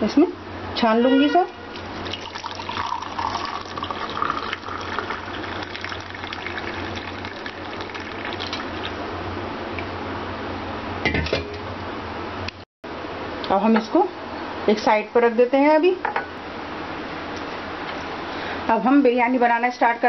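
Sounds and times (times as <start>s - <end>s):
liquid pouring into mug: 1.7s - 9.0s.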